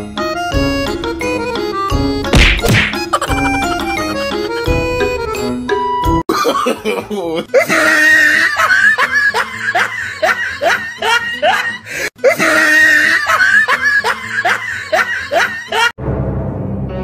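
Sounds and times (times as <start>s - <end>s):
person laughing: 2.9s - 3.8s, 6.3s - 15.9s.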